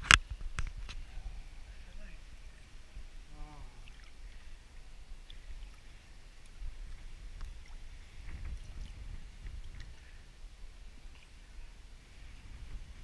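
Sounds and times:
pool water lapping and splashing: 0.4 - 13.0
small drips and clicks: 3.6 - 10.1.

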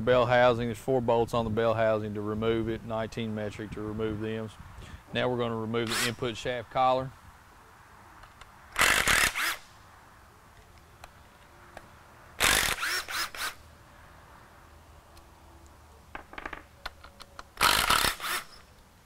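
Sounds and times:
power tool running: 17.6 - 18.6.

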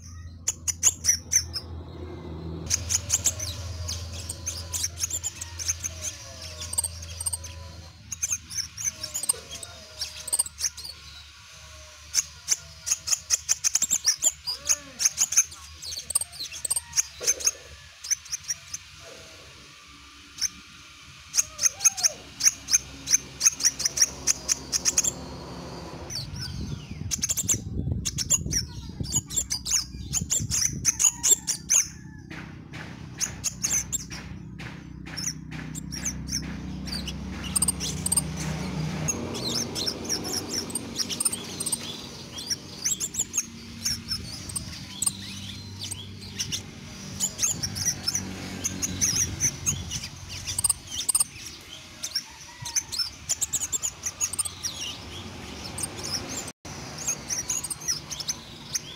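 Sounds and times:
bird singing high chirps: 0.0 - 32.2, 33.2 - 58.9.

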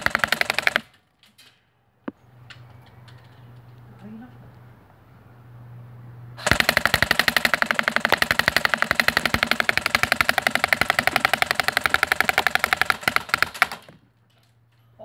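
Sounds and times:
airsoft rifle full-auto burst: 0.0 - 0.9, 6.4 - 14.0.

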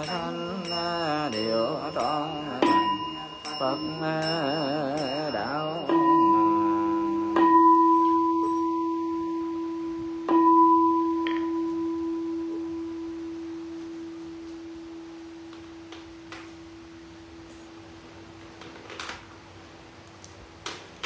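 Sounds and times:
bowl bell ringing: 0.0 - 15.1.

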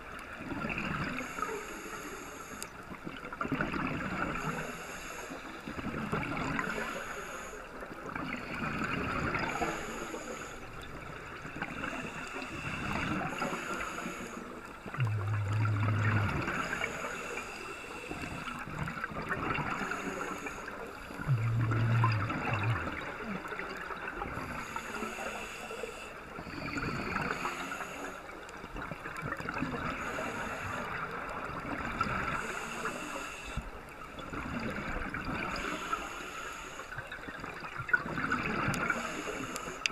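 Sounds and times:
underwater regulator bubbles gurgling: 2.5 - 5.0, 5.6 - 36.2, 37.0 - 39.9
low hum: 14.9 - 17.6, 21.1 - 23.3.

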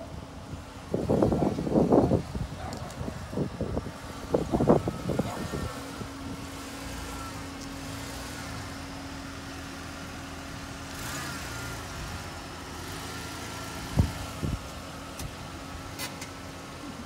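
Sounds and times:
car engine low hum: 0.0 - 17.0.

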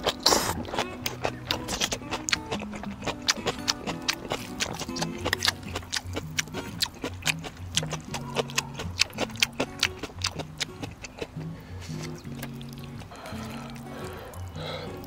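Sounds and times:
person slurping noodles: 0.0 - 0.9, 13.1 - 15.0
mouth clicks: 0.0 - 15.0.

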